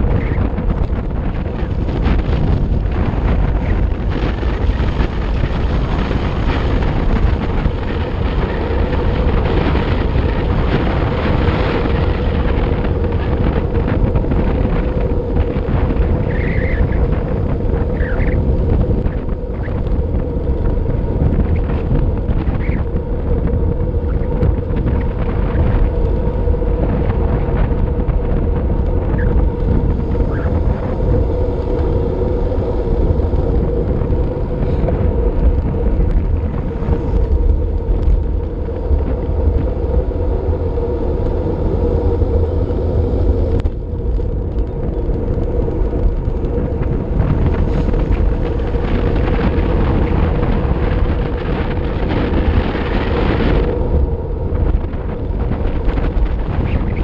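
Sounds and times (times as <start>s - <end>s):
steady hum: 0.0s - 57.0s
wind rushing across microphone: 0.0s - 57.0s.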